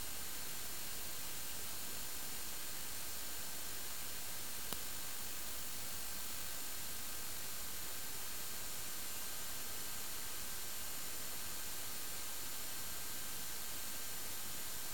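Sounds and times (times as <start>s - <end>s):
camera microphone hiss: 0.0s - 14.9s
click: 4.7s - 4.9s.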